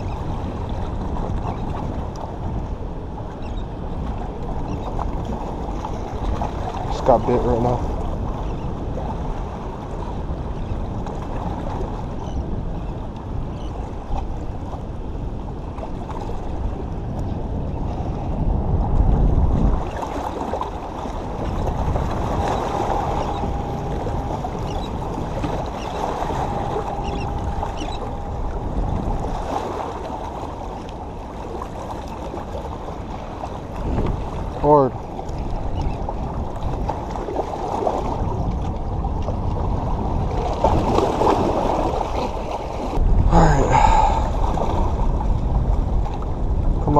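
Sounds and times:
wind buffeting microphone: 0:00.0 - 0:46.9
waves washing against rocks: 0:18.0 - 0:46.9
low rumble: 0:21.1 - 0:32.1.

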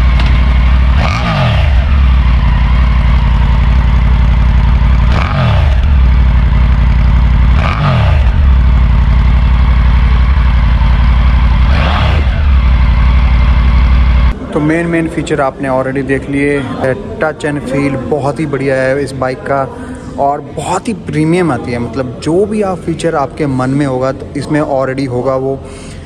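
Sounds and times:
motorcycle engine idling and revving: 0:00.0 - 0:14.4.

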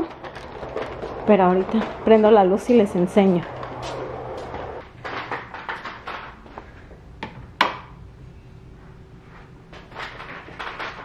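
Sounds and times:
footsteps: 0:00.0 - 0:07.0.

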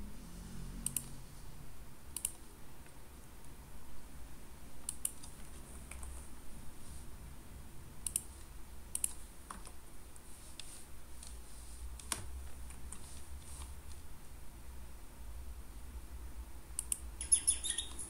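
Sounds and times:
low steady hum: 0:00.0 - 0:18.0
keyboard and mouse clicks: 0:00.8 - 0:01.2, 0:02.1 - 0:03.6, 0:04.8 - 0:06.3, 0:08.0 - 0:09.8, 0:12.0 - 0:14.0, 0:16.8 - 0:18.0.

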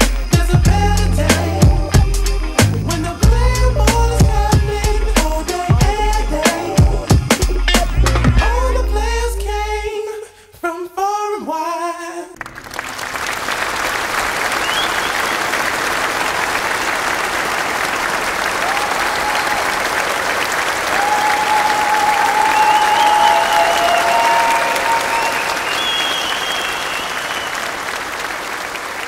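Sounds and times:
person singing: 0:00.0 - 0:12.4
crowd applause: 0:12.4 - 0:29.0
long high calls: 0:21.2 - 0:27.8.

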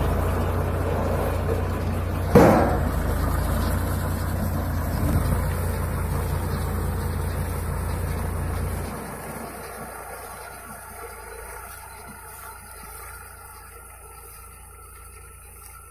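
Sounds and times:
tractor engine running: 0:00.0 - 0:15.9
sudden thump: 0:02.3 - 0:03.2.

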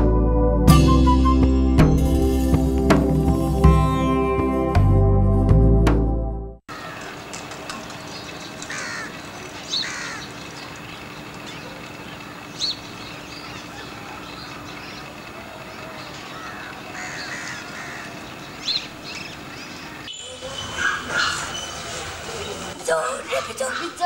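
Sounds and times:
crows cawing: 0:06.7 - 0:07.4, 0:08.6 - 0:10.6, 0:13.5 - 0:18.8, 0:19.5 - 0:21.9
sharp high bird calls: 0:08.0 - 0:22.6.

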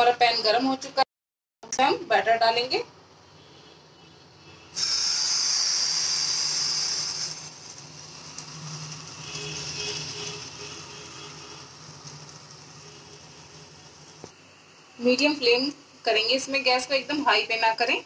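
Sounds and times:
batter sizzling in hot pan: 0:04.8 - 0:14.3.

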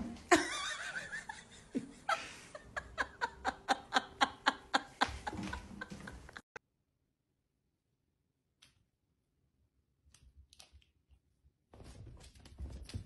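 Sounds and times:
person laughing hard: 0:00.3 - 0:06.4.

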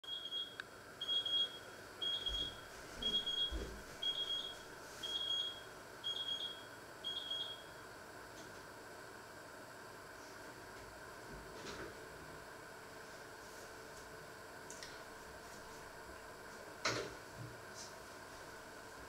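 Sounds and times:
electronic alarm beeping: 0:00.0 - 0:07.8.

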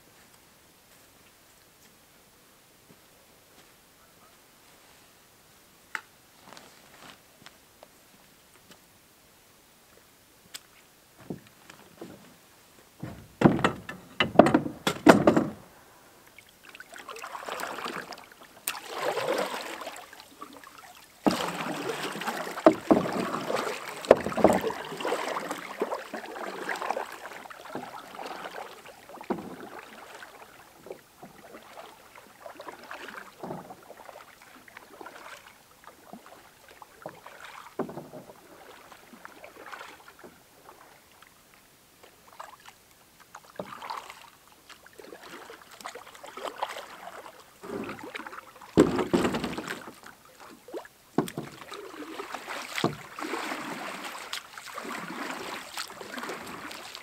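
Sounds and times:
paddle strokes in water: 0:10.6 - 0:57.0
gear knocking on canoe hull: 0:13.0 - 0:15.7, 0:22.6 - 0:25.0.

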